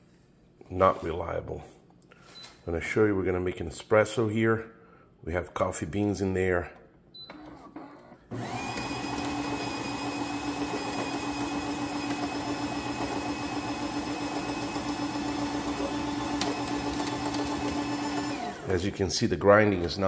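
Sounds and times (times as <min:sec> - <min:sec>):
person talking: 0:00.6 - 0:01.8, 0:18.6 - 0:20.0
grinder motor whining: 0:08.3 - 0:18.7.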